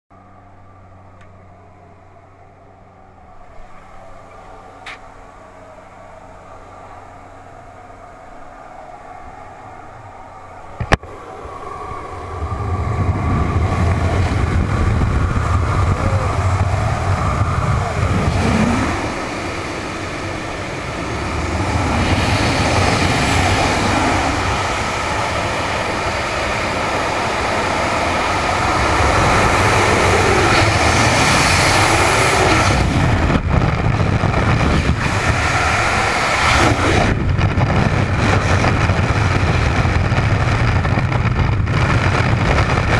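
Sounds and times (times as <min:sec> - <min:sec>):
wind buffeting a helmet camera: 0:06.2 - 0:42.9.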